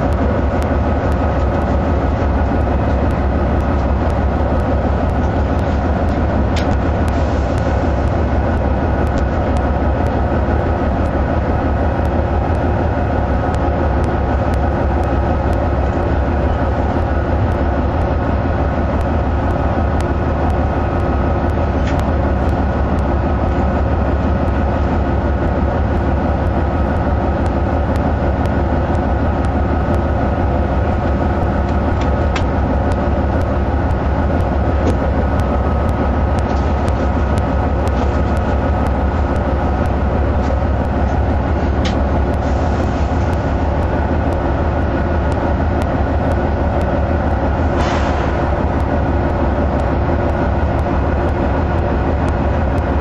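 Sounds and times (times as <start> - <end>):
diesel locomotive engine running: 0.0 - 53.0
steady whine: 0.0 - 53.0
faint clicks: 18.9 - 23.1.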